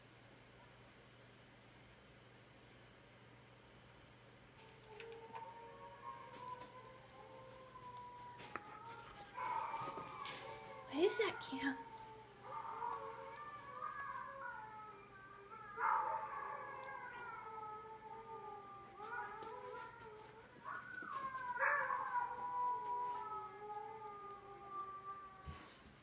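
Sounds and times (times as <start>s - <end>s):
dog howling: 4.6s - 25.7s.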